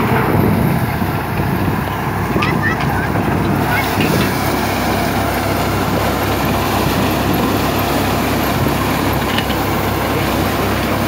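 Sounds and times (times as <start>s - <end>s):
threshing drum working: 0.0s - 11.0s
tractor engine drone: 0.0s - 11.0s.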